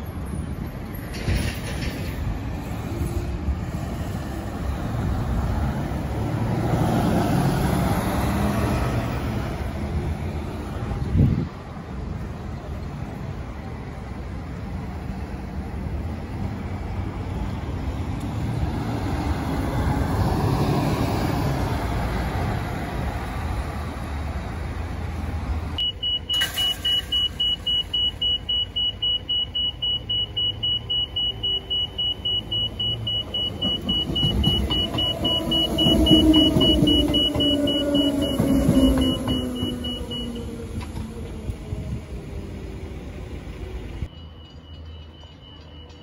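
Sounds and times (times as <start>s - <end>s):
light traffic: 0.0s - 46.0s
diesel bus pulling away: 0.1s - 45.9s
railway crossing alarm beeping: 25.8s - 40.8s, 44.0s - 46.0s
electric train rumbling: 31.3s - 46.0s.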